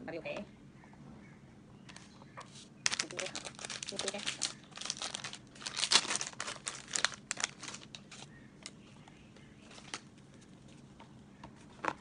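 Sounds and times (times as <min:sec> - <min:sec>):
plastic packaging crinkling: 0:02.8 - 0:08.8, 0:09.6 - 0:10.6.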